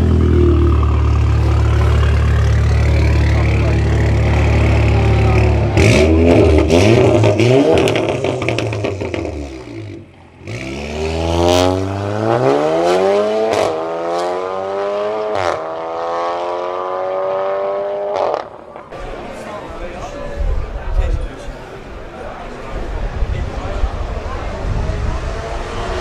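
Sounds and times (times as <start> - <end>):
car engine accelerating: 0.0 - 18.6, 23.8 - 26.0.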